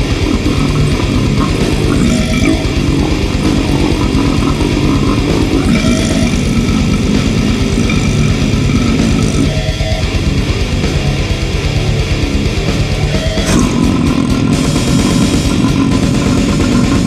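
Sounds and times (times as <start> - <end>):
death metal song: 0.0 - 17.0.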